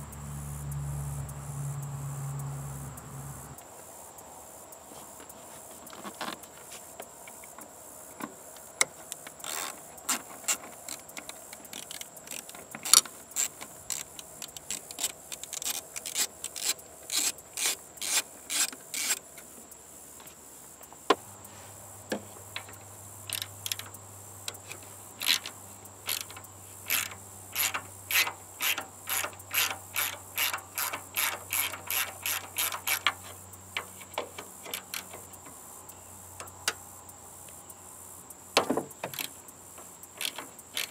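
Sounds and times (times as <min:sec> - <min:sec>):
ratchet wrench clicking: 0:09.4 - 0:19.3, 0:22.6 - 0:35.6, 0:38.9 - 0:40.9.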